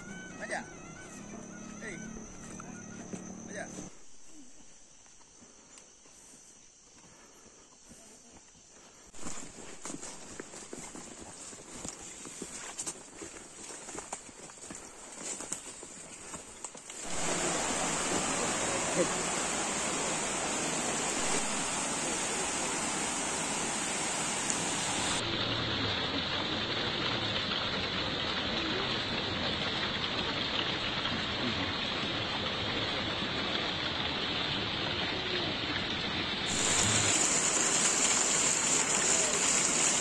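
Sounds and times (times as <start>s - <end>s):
stream water over rocks: 16.9s - 40.0s.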